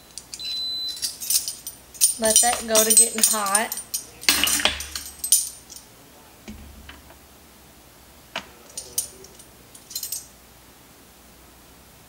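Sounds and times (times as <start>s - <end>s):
metal spoon clinking on pot: 1.0s - 5.5s.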